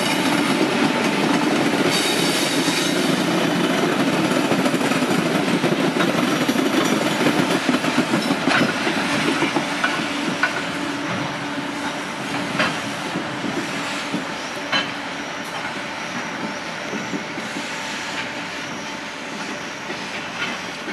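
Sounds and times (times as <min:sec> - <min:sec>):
train wheels rumbling on rails: 0:00.0 - 0:20.9
wheels clicking over rail joints: 0:03.5 - 0:10.7.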